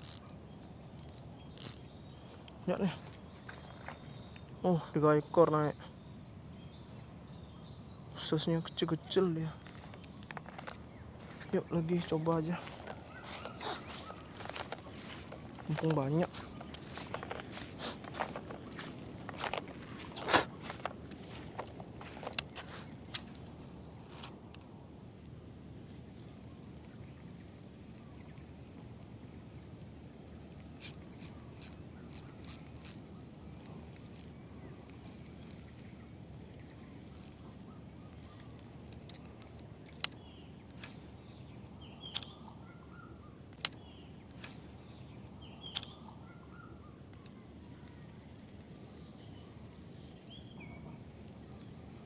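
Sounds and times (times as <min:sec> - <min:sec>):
sharp clicks: 0:00.0 - 0:00.2, 0:01.0 - 0:01.8
high-pitched insect chorus: 0:00.0 - 0:27.3, 0:27.9 - 0:52.0.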